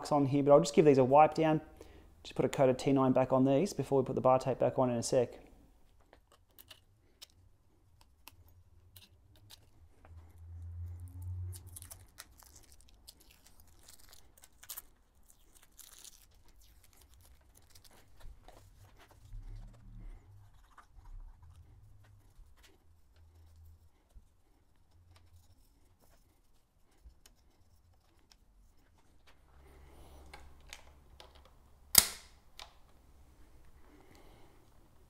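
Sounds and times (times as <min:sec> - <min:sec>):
rustling and rubbing: 0:08.8 - 0:29.9.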